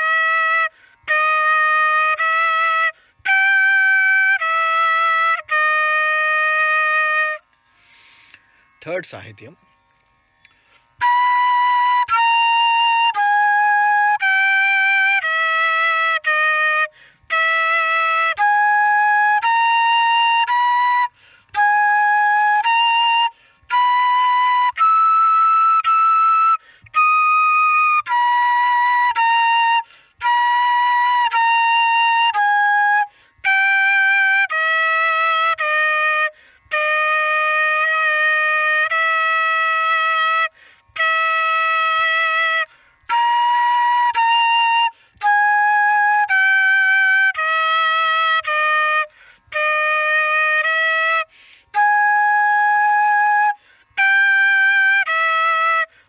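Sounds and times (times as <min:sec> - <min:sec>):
bamboo flute playing: 0:00.0 - 0:08.8, 0:10.4 - 0:56.0
flute player breathing: 0:00.6 - 0:01.1, 0:02.8 - 0:03.3, 0:07.5 - 0:08.8, 0:10.4 - 0:11.0, 0:16.8 - 0:17.4, 0:21.0 - 0:21.6, 0:23.2 - 0:23.8, 0:26.5 - 0:27.0, 0:29.7 - 0:30.3, 0:33.0 - 0:33.5, 0:36.2 - 0:36.8, 0:40.4 - 0:41.0, 0:42.5 - 0:43.1, 0:44.9 - 0:45.3, 0:49.0 - 0:49.6, 0:51.2 - 0:51.8, 0:53.5 - 0:54.0, 0:55.8 - 0:56.0.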